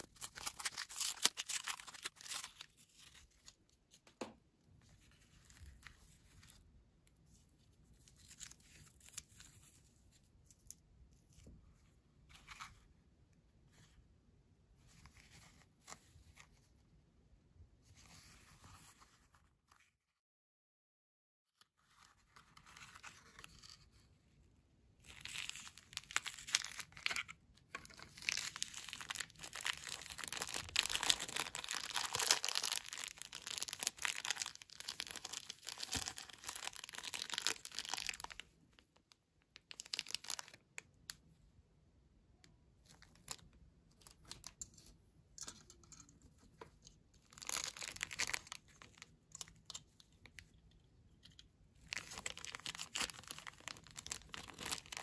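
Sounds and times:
paper and plastic tearing and crinkling: 0.0 - 2.7, 25.2 - 38.4, 47.3 - 49.0, 51.8 - 55.0.

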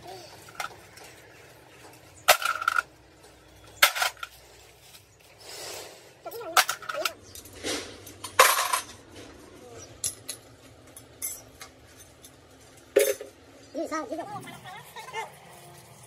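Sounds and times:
metal tools clanking: 0.3 - 4.5, 6.3 - 13.4.

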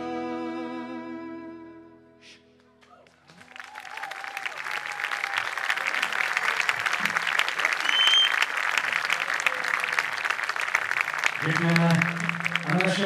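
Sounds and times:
audience applauding: 2.8 - 13.0
high whistle from crowd: 7.6 - 8.5.

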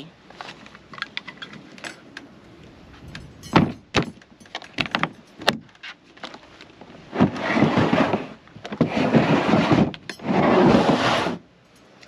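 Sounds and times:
plastic case scraping across truck bed: 6.8 - 11.4.

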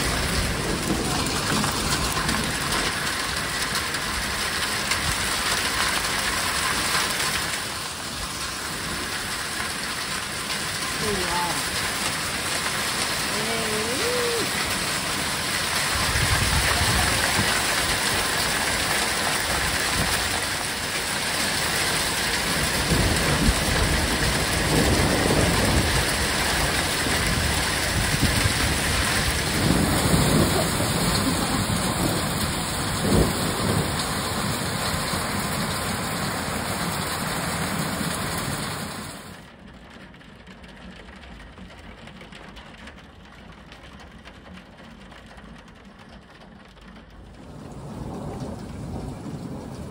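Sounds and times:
low thunder rumbling: 0.0 - 6.1, 8.8 - 38.9, 47.1 - 49.9
heavy rain pouring: 0.0 - 41.0, 43.9 - 49.9.

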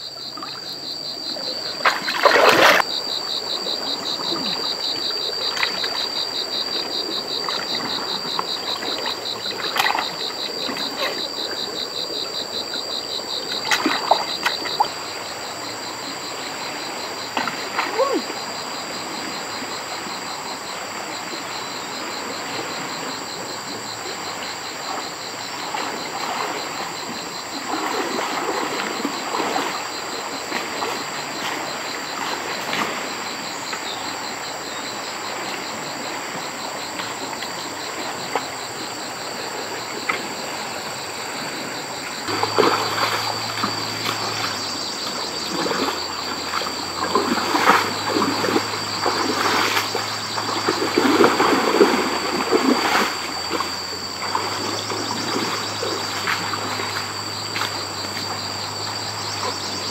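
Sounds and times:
insects chirping: 0.0 - 59.9
water splashing and trickling: 0.2 - 59.9.

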